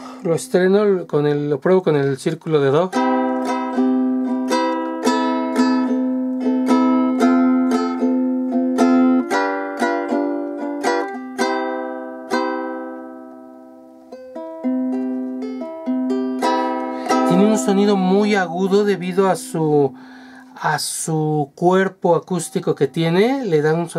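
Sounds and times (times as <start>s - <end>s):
ukulele strumming chords: 2.2s - 20.4s.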